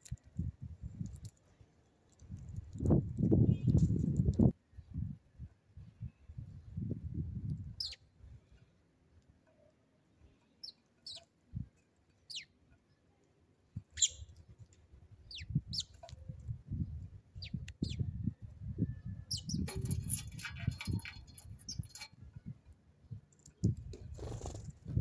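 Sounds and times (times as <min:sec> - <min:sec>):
sparrows chirping: 0:07.8 - 0:08.6, 0:10.2 - 0:11.3, 0:12.2 - 0:13.0, 0:13.9 - 0:14.4, 0:15.2 - 0:16.0, 0:16.7 - 0:18.4, 0:19.0 - 0:22.1.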